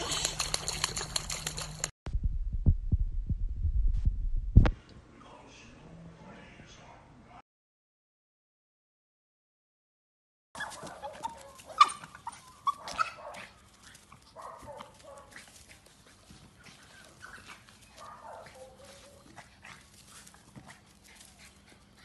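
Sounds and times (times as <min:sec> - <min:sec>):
small dog barking and yipping: 0:10.6 - 0:21.9.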